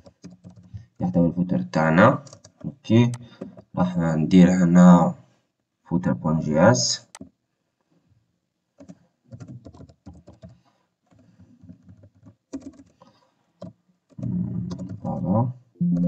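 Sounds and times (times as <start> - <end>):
keyboard typing: 0.0 - 1.1, 2.1 - 3.7, 7.0 - 7.4, 8.8 - 15.1.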